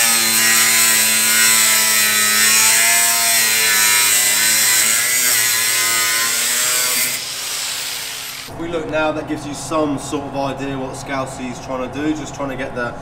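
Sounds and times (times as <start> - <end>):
angle grinder cutting steel: 0.0 - 8.5.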